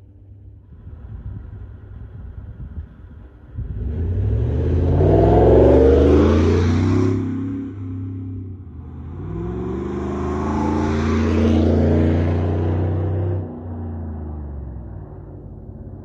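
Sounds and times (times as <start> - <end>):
truck engine accelerating past: 3.6 - 16.0.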